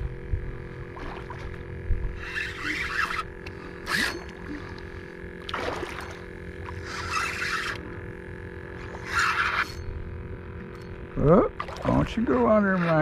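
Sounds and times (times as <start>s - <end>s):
fish splashing at the surface: 5.4s - 6.2s.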